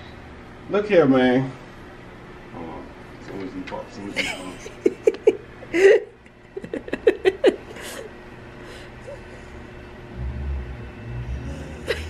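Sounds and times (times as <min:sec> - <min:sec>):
man laughing: 0:04.1 - 0:08.1, 0:11.6 - 0:12.0.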